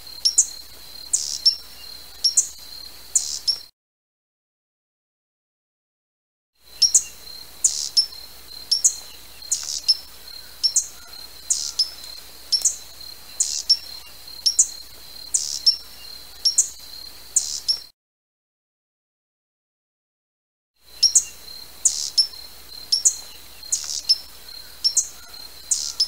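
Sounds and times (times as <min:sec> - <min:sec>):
hummingbird chip calls: 0:00.2 - 0:03.6, 0:06.7 - 0:17.8, 0:20.9 - 0:26.0.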